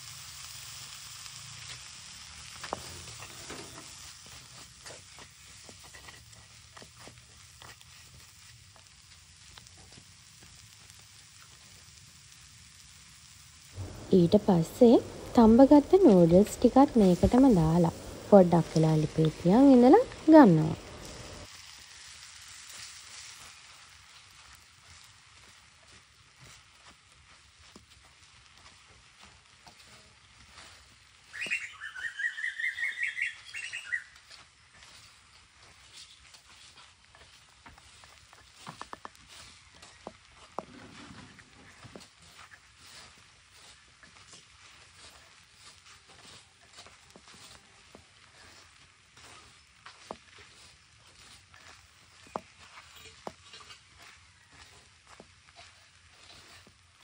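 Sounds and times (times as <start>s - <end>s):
food sizzling in a pan: 0.0s - 57.0s
bird chirping: 31.3s - 34.2s.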